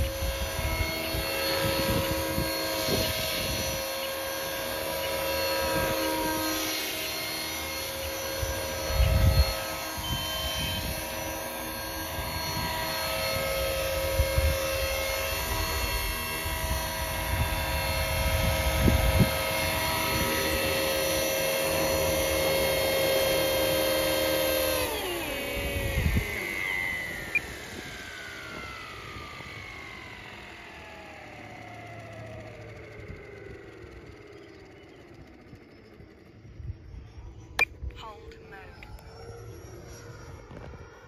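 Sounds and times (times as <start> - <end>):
wind rumble on microphone: 0.0 - 3.9, 8.1 - 23.6, 25.5 - 26.5
rc helicopter rotor whine: 0.0 - 41.0.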